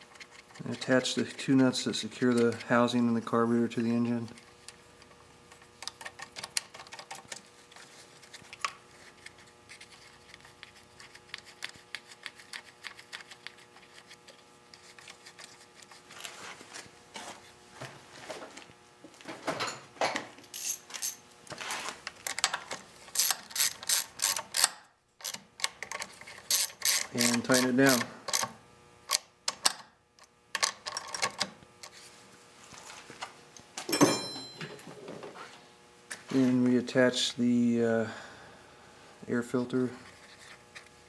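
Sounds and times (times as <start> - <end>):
socket ratchet clicking: 23.1 - 28.5.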